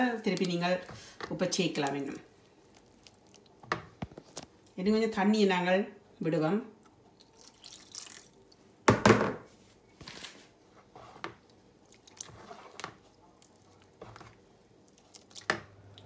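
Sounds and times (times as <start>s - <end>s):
spoon stirring thick batter: 0.0s - 4.5s, 10.7s - 15.7s.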